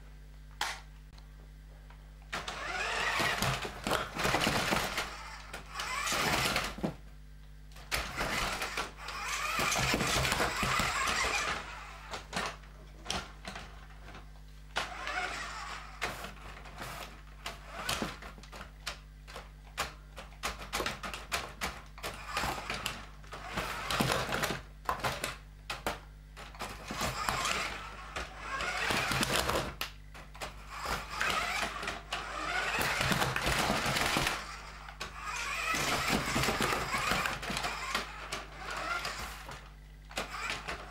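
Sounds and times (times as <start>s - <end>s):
toy truck motor whirring: 2.4s - 7.0s, 7.8s - 40.9s
tyres knocking over plastic objects: 30.4s - 40.9s.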